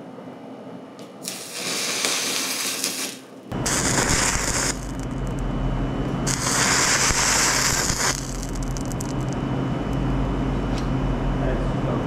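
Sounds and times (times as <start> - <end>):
crackles and pops: 1.2 - 5.4, 6.3 - 9.4
loud hiss: 1.2 - 5.4, 6.3 - 9.4
steady low hum: 3.2 - 12.0.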